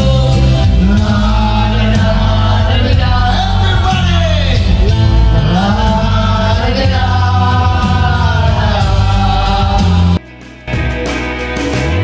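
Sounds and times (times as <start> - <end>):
backing track with heavy bass: 0.0 - 12.0.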